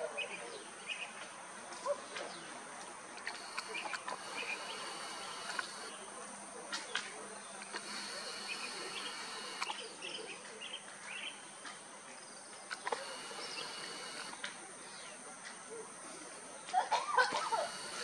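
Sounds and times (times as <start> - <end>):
sharp clicks: 3.2 - 5.9, 6.8 - 9.8, 12.6 - 14.6, 17.3 - 18.0
high-pitched insect drone: 3.2 - 6.0, 7.6 - 9.9, 12.7 - 14.4, 17.2 - 18.0
bird chirps and calls: 7.7 - 11.4.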